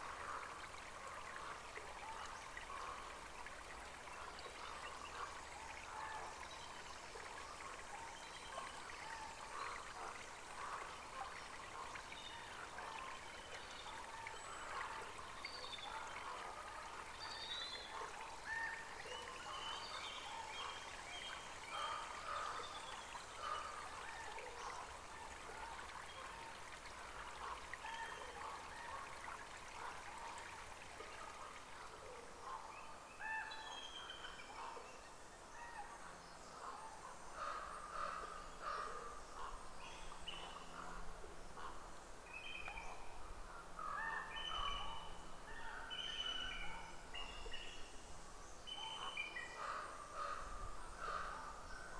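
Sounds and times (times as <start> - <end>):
trickling water: 0.0 - 34.7.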